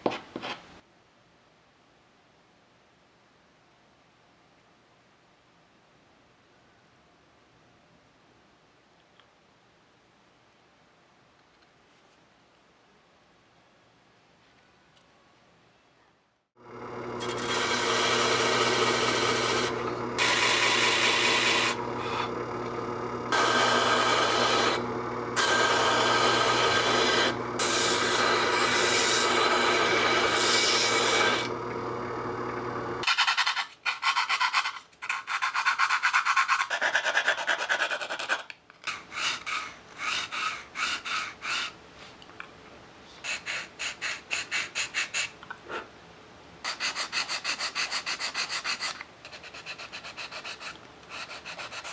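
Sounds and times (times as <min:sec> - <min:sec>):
disc sander motor hum: 0:16.6 - 0:33.0
hand sanding wood: 0:17.2 - 0:22.3, 0:33.0 - 0:41.8, 0:46.7 - 0:51.9
wood grinding on sanding disc: 0:17.2 - 0:33.6.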